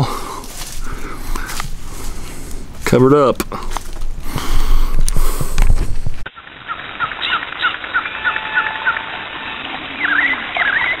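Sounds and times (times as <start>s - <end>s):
birds chirping: 6.2s - 11.0s
slurred bird calls: 6.3s - 11.0s.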